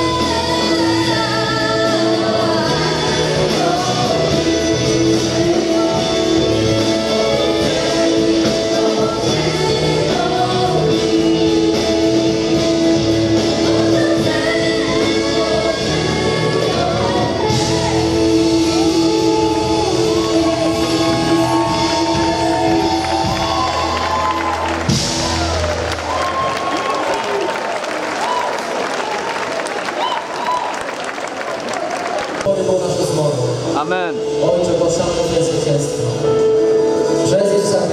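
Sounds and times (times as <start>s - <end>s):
woman singing lead vocals: 0.0s - 24.8s
gospel choir singing: 0.0s - 25.4s
band playing: 0.0s - 28.0s, 32.2s - 37.9s.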